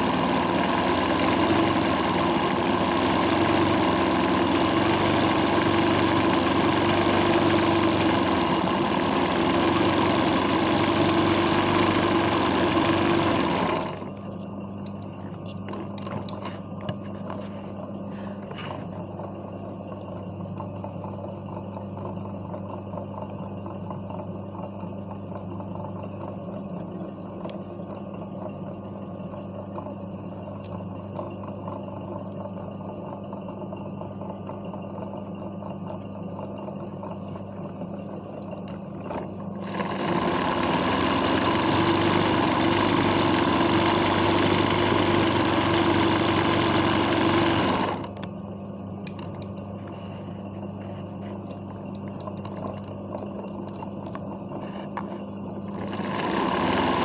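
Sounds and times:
sewing machine stitching fast: 0.0s - 14.1s, 39.0s - 48.2s, 55.7s - 57.0s
low motor hum: 0.0s - 57.0s.

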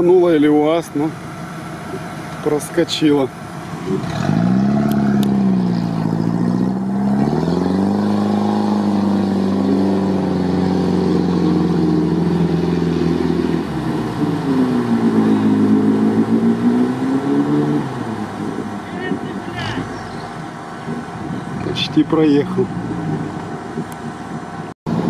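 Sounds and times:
off-road vehicle engine revving: 0.0s - 24.2s.

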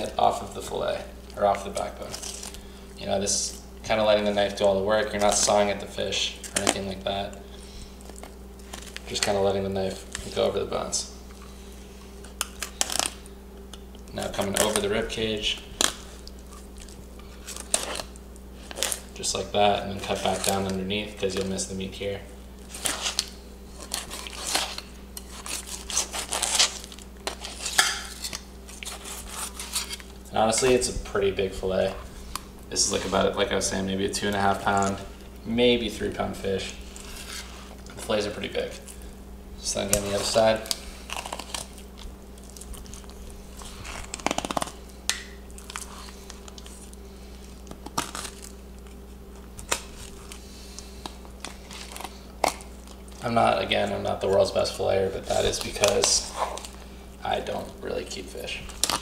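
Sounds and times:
knife scraping fish bones: 17.4s - 19.0s, 22.7s - 30.1s.

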